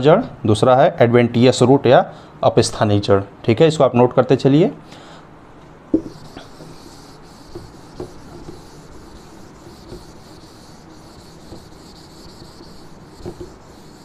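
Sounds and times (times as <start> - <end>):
light knocks against board: 5.9 - 6.1
eraser rubbing on whiteboard: 6.0 - 14.0.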